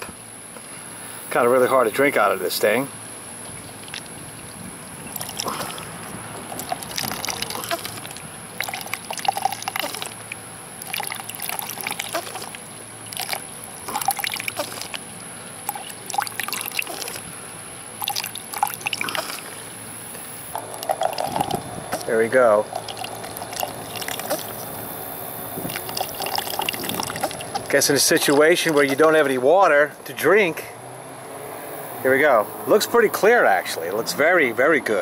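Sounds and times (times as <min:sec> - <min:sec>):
water squirting into cup: 0:05.1 - 0:17.3, 0:18.0 - 0:19.6, 0:20.5 - 0:24.8, 0:25.5 - 0:29.2.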